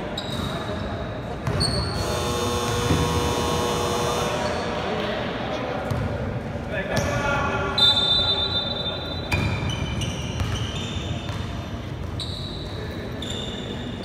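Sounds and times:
shoe squeaks: 0.1 - 2.1, 7.8 - 14.0
basketball bouncing on wooden court: 5.9 - 6.1, 9.3 - 12.3.

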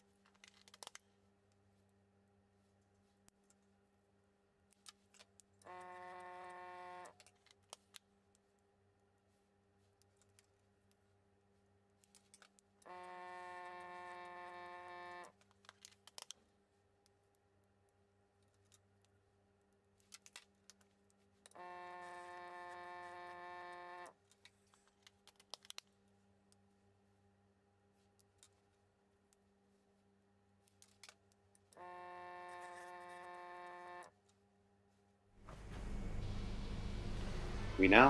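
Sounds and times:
vortex mixer buzzing hum: 35.4 - 38.0.

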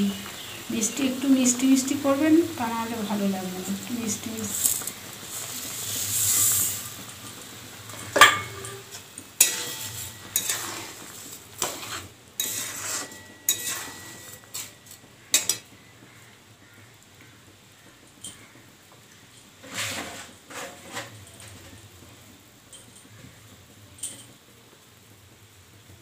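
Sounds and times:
sugar pouring with hiss: 0.0 - 15.0
metal spatula scraping pan: 4.2 - 7.2, 7.9 - 15.7, 19.6 - 21.8
spatula clinking on pan: 8.0 - 15.7.

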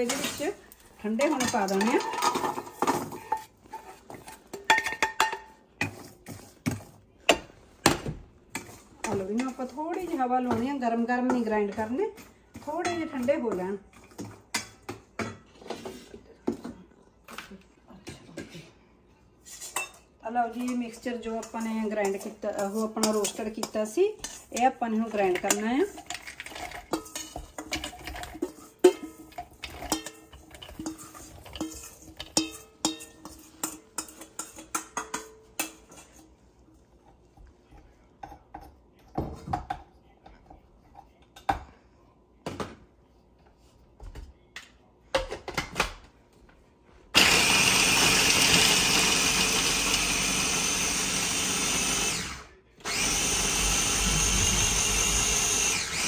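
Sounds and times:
spoon scraping steel pan: 20.7 - 36.4
electric food chopper grinding: 47.2 - 56.0.

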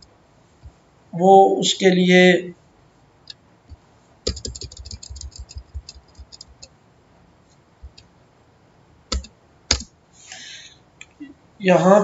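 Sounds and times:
computer mouse clicks: 4.3 - 6.7, 9.1 - 9.9.

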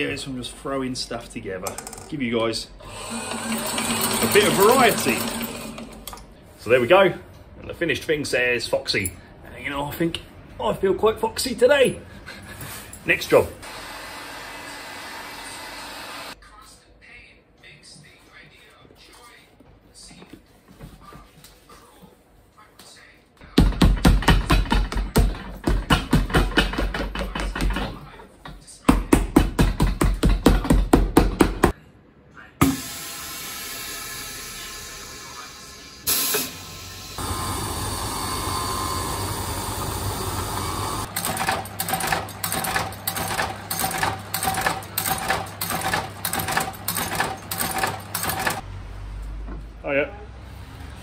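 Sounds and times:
stitching machine running: 2.8 - 6.2, 37.2 - 48.6
steady machine hum: 32.6 - 48.6
pneumatic press hissing: 36.1 - 41.9.

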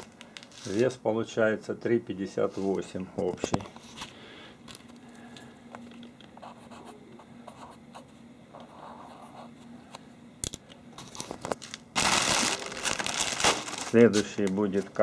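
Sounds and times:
marker scratching on paper: 6.4 - 9.6.

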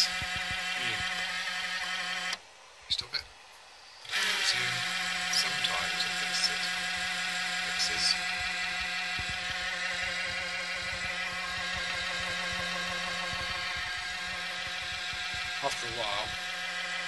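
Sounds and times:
cooling fan whining: 0.0 - 2.4, 3.6 - 17.0
low hum: 3.6 - 17.0.

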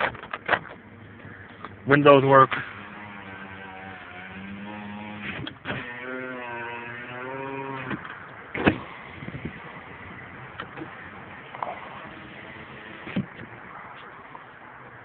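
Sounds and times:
power window motor whine: 2.6 - 13.7.

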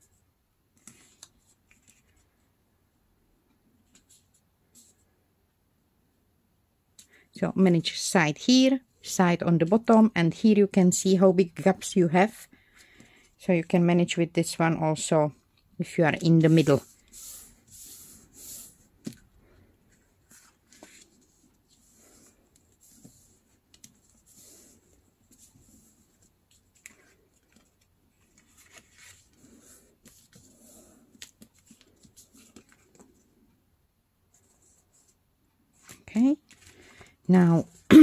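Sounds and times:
newspaper rustling and rubbing: 16.2 - 19.1, 19.9 - 33.1.

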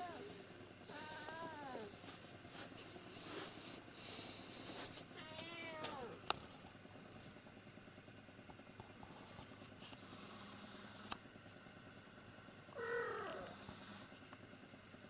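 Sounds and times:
cat meowing: 0.9 - 1.9, 5.2 - 6.2, 12.8 - 13.6.

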